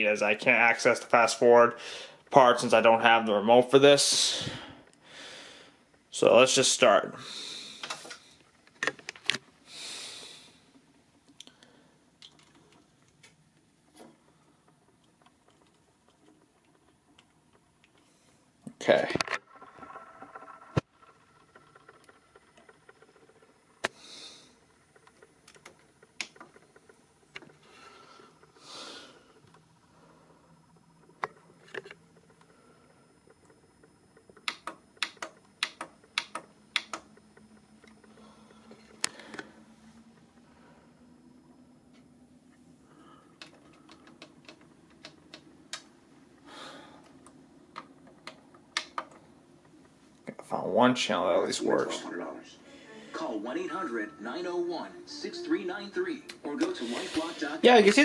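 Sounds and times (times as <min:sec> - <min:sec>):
sharp clicks: 0:25.0 - 0:28.0, 0:34.2 - 0:39.5, 0:47.0 - 0:50.0
soft hissing: 0:27.4 - 0:30.4
push buttons clicking: 0:34.4 - 0:37.2.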